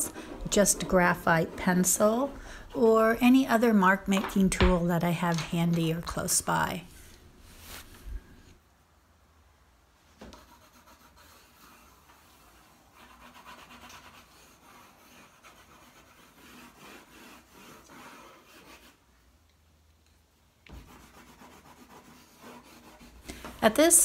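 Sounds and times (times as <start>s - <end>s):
drawing tool scribbling on paper: 10.3s - 19.0s, 20.8s - 23.2s.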